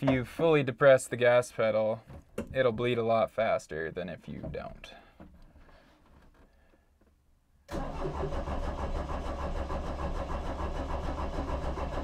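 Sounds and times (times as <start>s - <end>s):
starter motor cranking diesel engine: 7.7s - 12.0s.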